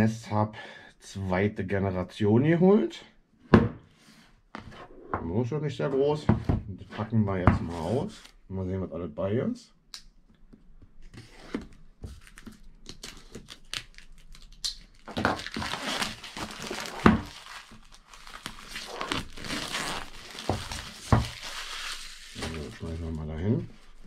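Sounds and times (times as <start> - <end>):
plastic wrapping crinkling: 12.1 - 24.0.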